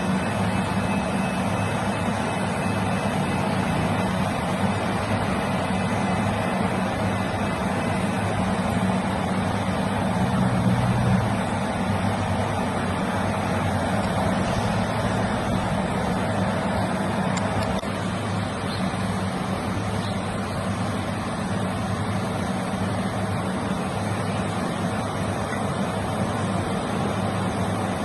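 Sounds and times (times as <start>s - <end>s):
road traffic engine hum: 0.0s - 28.0s.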